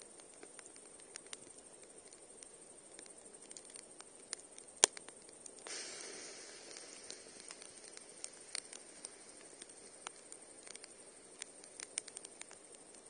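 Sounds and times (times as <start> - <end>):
campfire crackling: 0.0 - 13.0
brief hiss: 5.6 - 12.7
loud sharp pop: 5.7 - 10.8.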